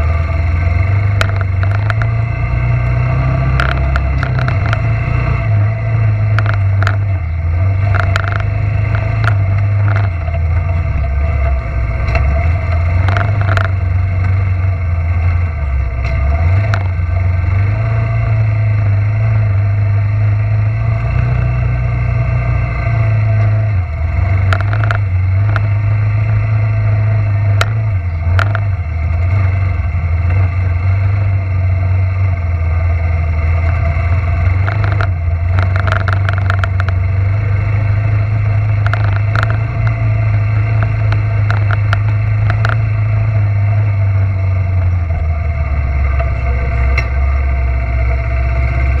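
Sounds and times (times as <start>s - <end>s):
sharp clicks and rattles: 0.0s - 19.3s, 20.7s - 49.0s
atv engine droning: 0.0s - 49.0s.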